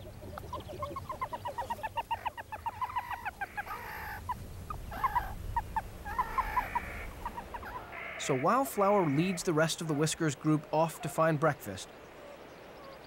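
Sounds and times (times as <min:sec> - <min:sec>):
meerkats chirping: 0:00.0 - 0:08.4.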